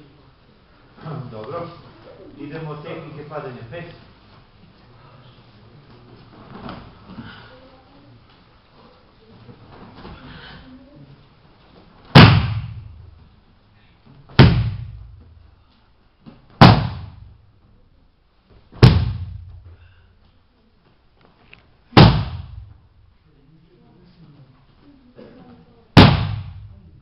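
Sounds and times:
body slapping padded mat: 12.1s - 13.0s, 14.3s - 15.2s, 16.4s - 17.3s, 18.7s - 19.7s, 21.9s - 22.8s, 26.0s - 26.8s.

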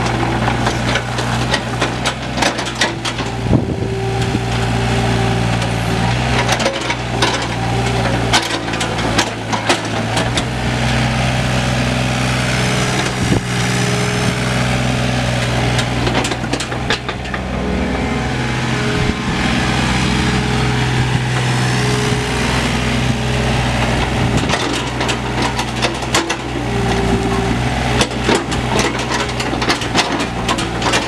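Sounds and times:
excavator diesel engine running: 0.0s - 31.0s
high steady tone: 12.8s - 23.9s.

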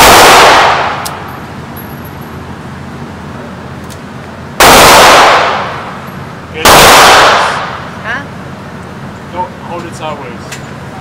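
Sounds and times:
handgun shot echoing indoors: 0.0s - 1.3s, 4.6s - 5.9s.

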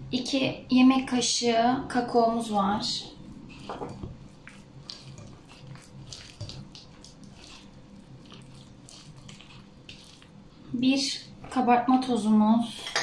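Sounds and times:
hand squishing cookie dough: 2.9s - 11.6s.

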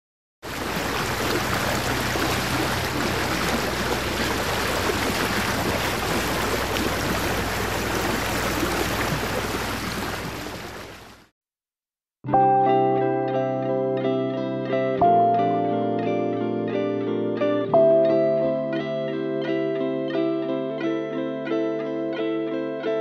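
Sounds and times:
water rushing along boat: 0.4s - 11.3s
low engine hum: 0.5s - 11.2s.

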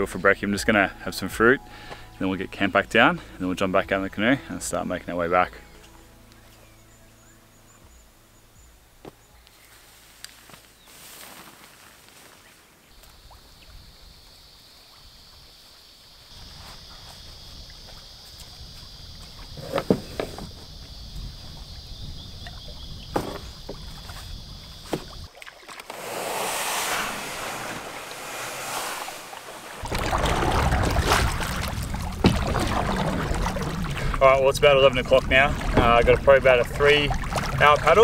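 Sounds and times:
water rushing: 25.3s - 38.0s
steady high buzz: 25.9s - 29.8s
wind on microphone: 25.9s - 38.0s
gear knocking in canoe: 29.4s - 38.0s.

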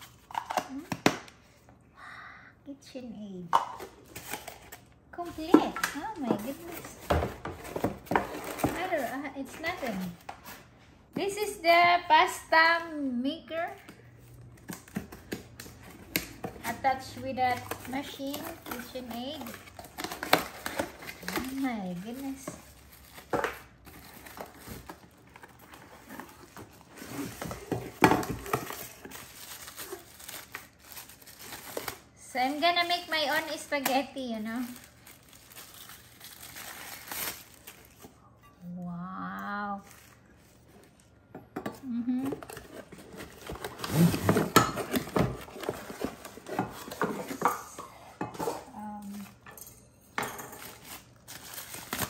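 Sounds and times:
plastic wrapping crinkling: 13.6s - 38.2s, 39.4s - 41.2s, 50.5s - 52.0s.

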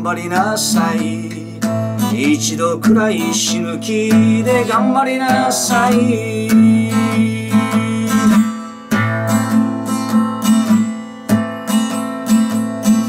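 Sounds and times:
acoustic guitar strumming: 0.0s - 13.0s.

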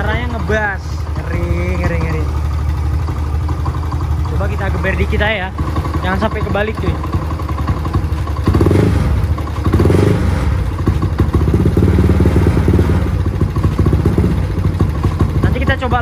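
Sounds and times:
scooter engine revving: 0.0s - 16.0s.

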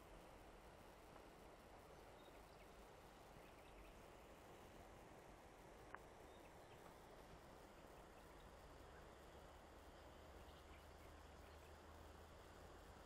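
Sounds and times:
faint background hiss: 0.0s - 13.0s
tiny ticks: 5.8s - 6.1s.

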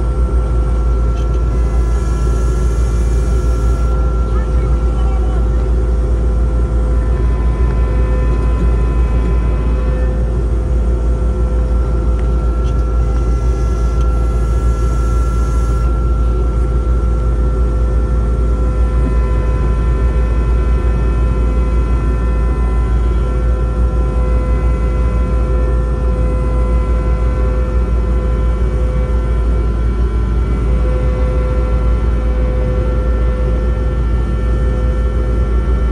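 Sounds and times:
steady engine whine: 0.0s - 35.9s
skid steer engine rumbling: 0.6s - 27.0s.

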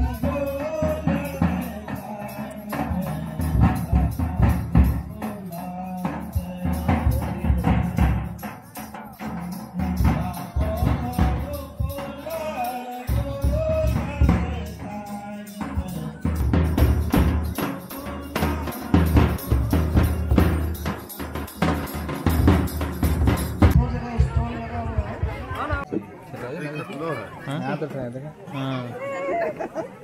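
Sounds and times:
large drum beating: 0.0s - 12.2s, 13.1s - 25.9s
person singing: 0.0s - 21.7s.

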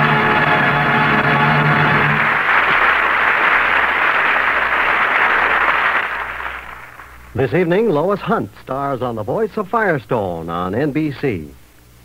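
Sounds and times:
orchestra holding final chord: 0.0s - 2.6s
audience applause: 0.0s - 7.3s.

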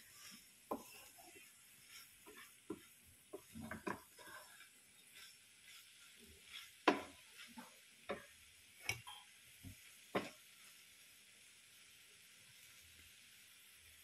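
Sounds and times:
wooden spatula knocking on pan: 0.6s - 1.1s, 2.2s - 4.5s, 6.8s - 9.0s, 9.6s - 10.4s.

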